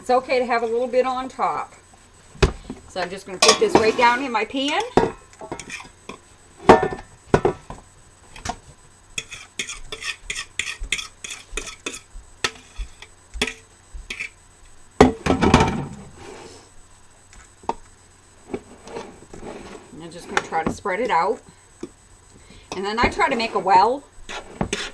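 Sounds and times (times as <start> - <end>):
utensil clinking on metal pan: 3.4 - 4.0.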